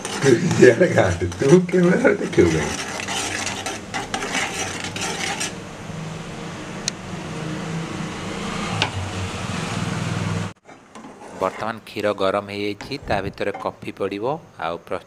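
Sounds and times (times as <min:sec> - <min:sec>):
spoon scraping a saucepan: 0:00.0 - 0:05.6, 0:10.7 - 0:11.8
low stove hum: 0:00.0 - 0:12.0.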